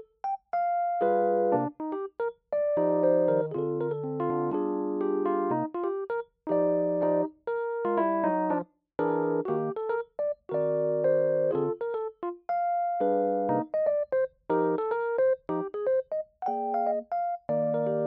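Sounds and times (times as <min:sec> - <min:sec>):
lofi keyboard chords: 0:00.0 - 0:18.0.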